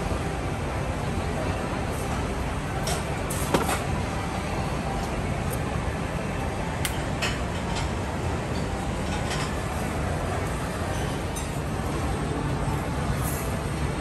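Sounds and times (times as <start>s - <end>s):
plates and utensils clinking: 8.6s - 9.8s.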